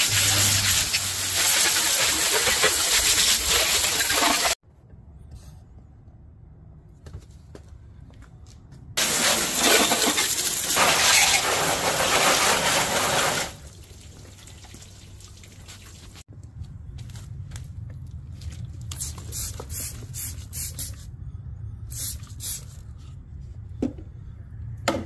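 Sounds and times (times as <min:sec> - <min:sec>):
hose nozzle water spraying: 0:00.0 - 0:04.6, 0:09.0 - 0:13.7.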